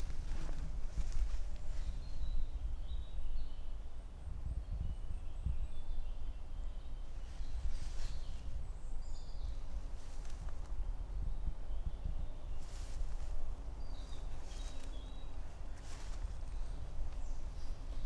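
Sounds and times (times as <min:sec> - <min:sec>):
small birds singing: 0:00.0 - 0:18.0
footsteps on forest path: 0:12.6 - 0:18.0.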